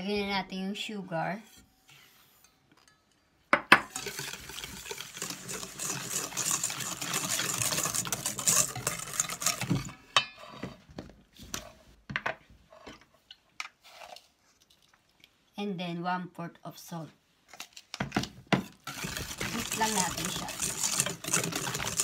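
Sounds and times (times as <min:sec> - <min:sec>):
whisk scraping metal bowl: 0:03.9 - 0:10.7, 0:18.6 - 0:22.0.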